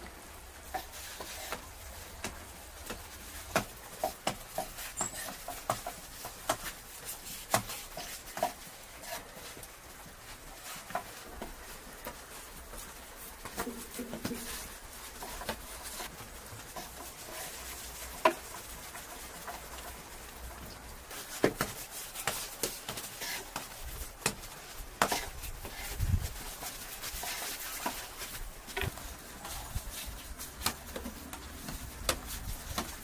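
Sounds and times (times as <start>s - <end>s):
hands patting dough: 0.6s - 20.4s, 21.0s - 33.0s.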